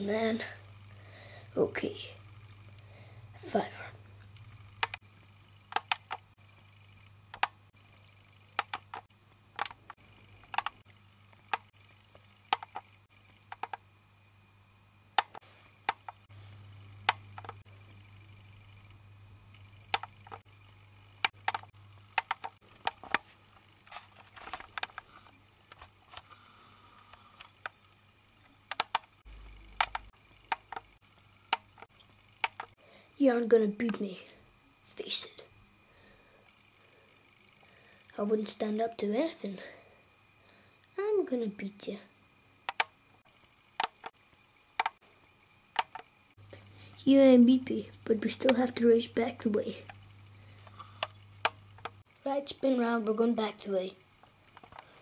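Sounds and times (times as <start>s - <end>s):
faint low hum: 0.0s - 55.0s
sharp clicks and taps: 4.2s - 5.0s, 5.7s - 6.3s, 7.3s - 13.8s, 15.2s - 16.3s, 17.0s - 17.6s, 19.9s - 20.4s, 21.2s - 23.2s, 24.3s - 25.1s, 28.7s - 29.1s, 29.7s - 30.9s, 31.5s - 32.8s, 42.7s - 42.9s, 43.8s - 44.1s, 44.8s - 45.0s, 45.8s - 46.1s.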